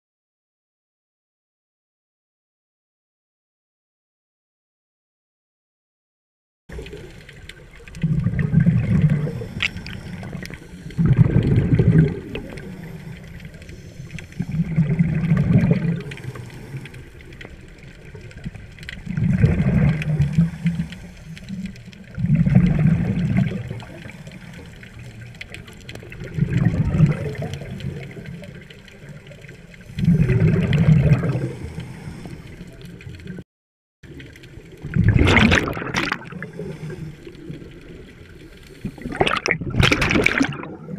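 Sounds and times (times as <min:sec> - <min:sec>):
low water hiss: 0:06.7 - 0:33.4, 0:36.2 - 0:39.2
underwater air bubbles rushing: 0:06.7 - 0:33.4, 0:34.1 - 0:40.9.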